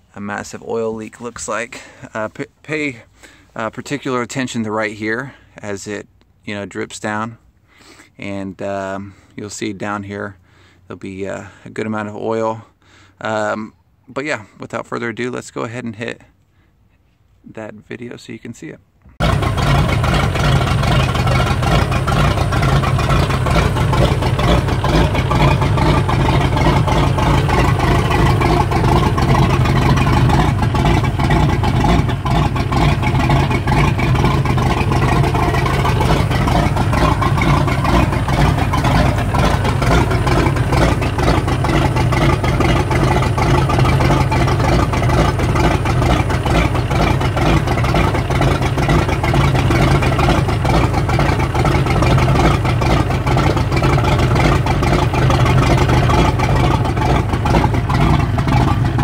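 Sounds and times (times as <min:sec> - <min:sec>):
boat engine idling: 0:19.1 - 0:59.0.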